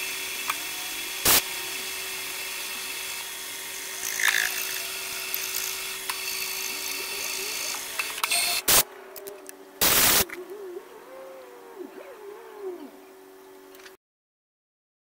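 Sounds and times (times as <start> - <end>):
milling machine cutting whine: 0.0 - 8.8
constant hum: 0.0 - 14.0.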